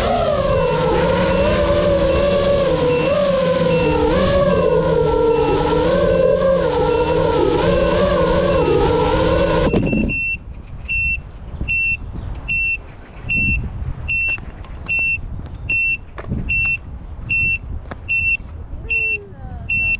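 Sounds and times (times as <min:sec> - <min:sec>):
low rumbling background: 0:00.0 - 0:19.9
short high beeps: 0:09.7 - 0:19.9.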